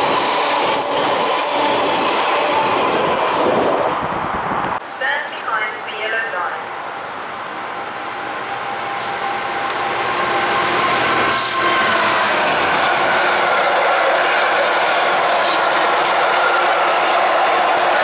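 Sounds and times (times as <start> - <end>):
diesel locomotive passing: 0.0 - 4.8, 6.5 - 18.0.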